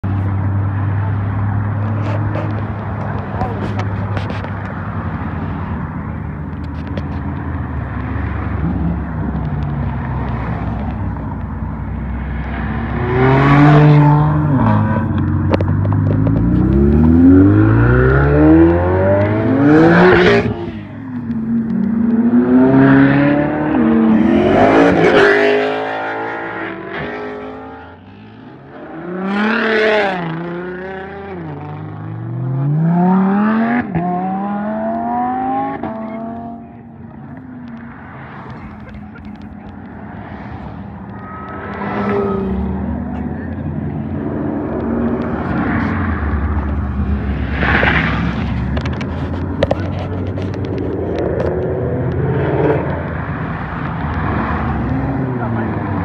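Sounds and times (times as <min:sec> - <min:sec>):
idling engines rumble: 0:00.0 - 0:13.0, 0:14.4 - 0:17.1, 0:36.6 - 0:56.0
sports car engines revving: 0:00.0 - 0:56.0.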